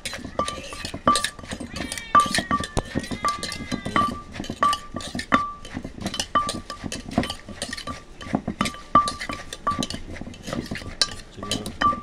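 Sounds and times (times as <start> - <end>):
metal spoon clinking on clay: 0.0 - 12.0
wooden pestle thudding in mortar: 0.0 - 12.0.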